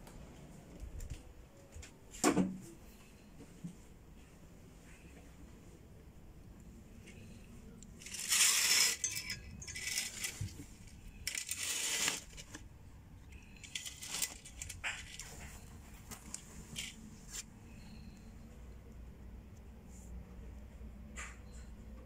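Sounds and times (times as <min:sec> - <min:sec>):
fabric curtain rustling: 0:08.0 - 0:12.6.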